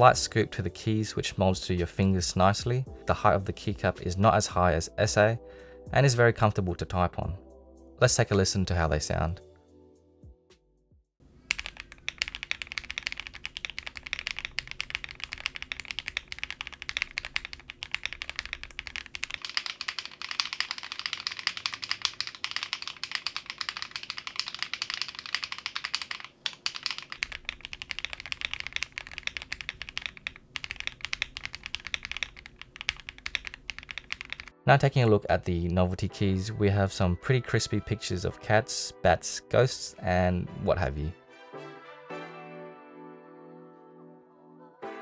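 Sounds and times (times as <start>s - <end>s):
fast mechanical keyboard typing: 11.5s - 34.5s.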